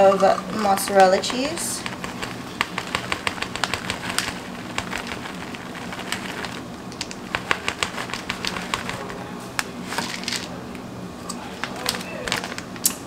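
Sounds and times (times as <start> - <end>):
low steady hum: 0.0 - 13.0
cheese shreds ticking: 1.0 - 9.2
plastic bag crinkling: 1.4 - 10.6, 11.6 - 12.9.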